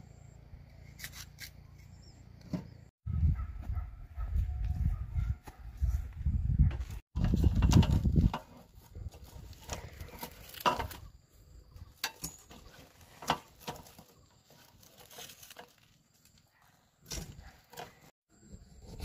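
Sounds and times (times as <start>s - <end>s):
bamboo sticks clicking and creaking: 7.2s - 11.2s, 11.8s - 18.1s.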